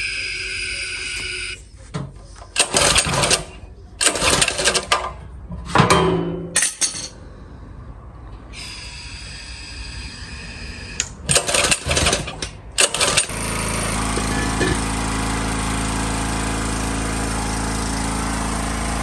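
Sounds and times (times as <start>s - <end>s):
recoil starter pulls rattling: 2.6s - 5.2s, 11.2s - 15.9s.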